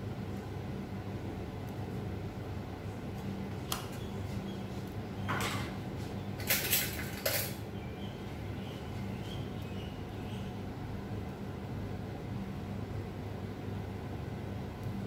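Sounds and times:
steady low hum: 0:00.0 - 0:15.0
cookware clinking and scraping: 0:06.4 - 0:07.6.

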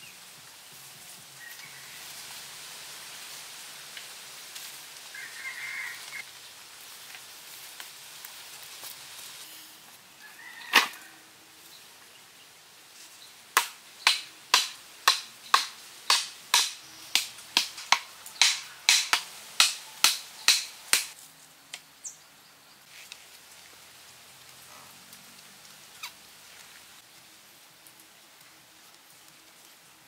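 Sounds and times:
hammer knocking wooden stakes: 0:13.6 - 0:21.1.

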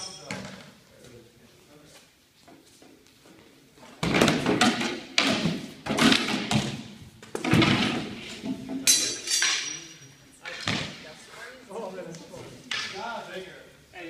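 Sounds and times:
weapons knocking wooden shields: 0:04.0 - 0:09.0.

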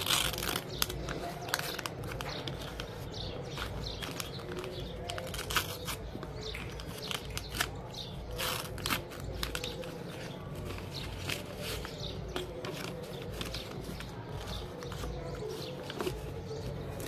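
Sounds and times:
paper rustling and crinkling: 0:00.0 - 0:17.0.

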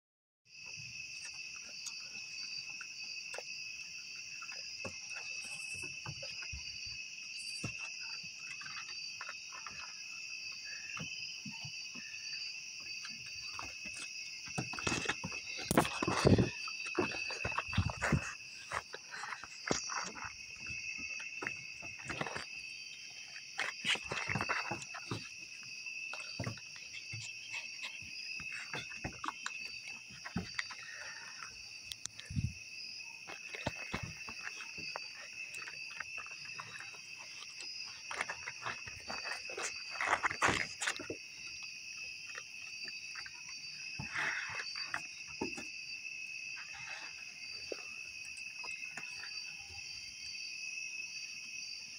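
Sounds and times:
night insects chorus: 0:00.5 - 0:51.9
raccoons scratching on wooden deck: 0:01.1 - 0:49.6.

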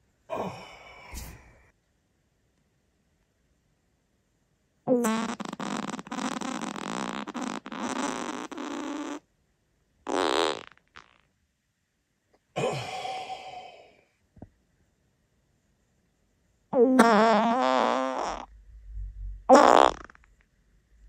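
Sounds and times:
man farting: 0:04.9 - 0:09.2, 0:10.1 - 0:11.2, 0:16.8 - 0:18.5, 0:19.5 - 0:20.2.

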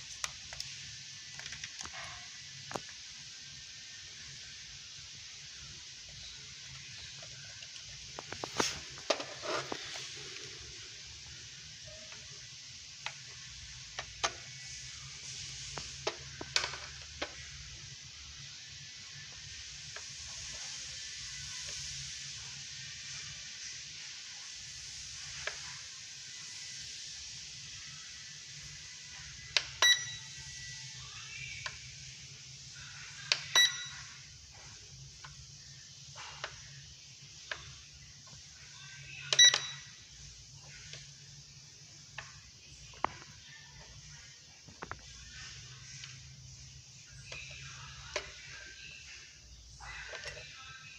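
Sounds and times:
steady hiss and low hum: 0:00.0 - 0:50.9
short electronic beep: 0:33.6 - 0:34.0.

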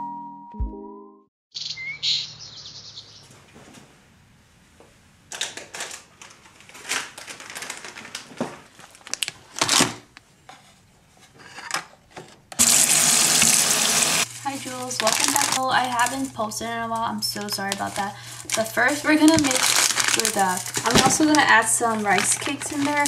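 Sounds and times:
loud steady hiss: 0:12.6 - 0:14.3.

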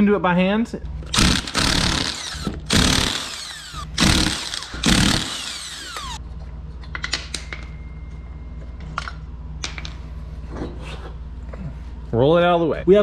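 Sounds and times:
impact wrench hammering: 0:01.1 - 0:06.2.

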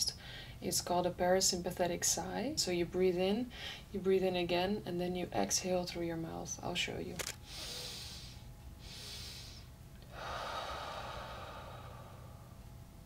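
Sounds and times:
woman inhaling through nose: 0:07.4 - 0:12.3.

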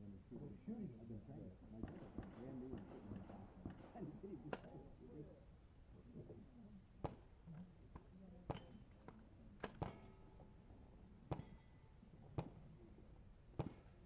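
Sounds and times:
faint gunshots: 0:01.8 - 0:04.7, 0:13.6 - 0:14.0
metallic ring of steel target: 0:09.6 - 0:10.4, 0:11.3 - 0:12.0.

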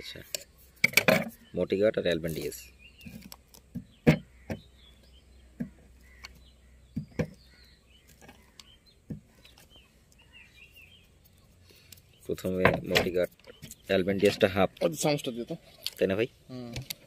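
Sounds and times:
faint bird chirps: 0:00.0 - 0:15.8.

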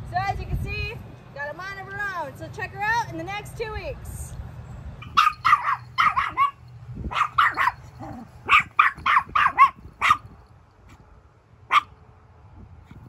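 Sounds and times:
small dog yapping: 0:05.0 - 0:10.3, 0:11.7 - 0:11.9.

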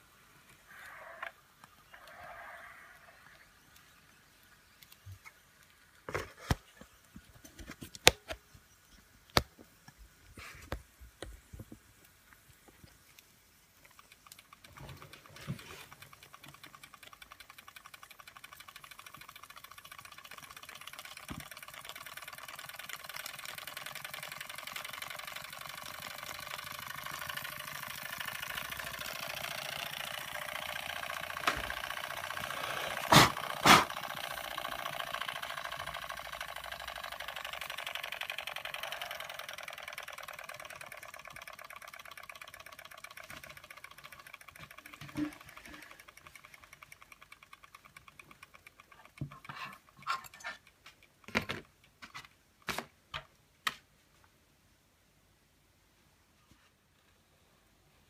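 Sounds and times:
toy steam engine running: 0:13.1 - 0:51.2.

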